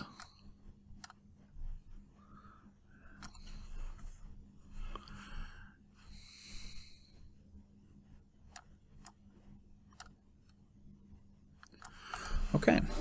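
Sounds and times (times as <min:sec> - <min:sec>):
computer mouse clicks: 0:00.0 - 0:01.3, 0:03.1 - 0:03.8, 0:08.5 - 0:09.2, 0:09.8 - 0:10.6, 0:11.6 - 0:12.4
faint steady hum: 0:00.0 - 0:13.0.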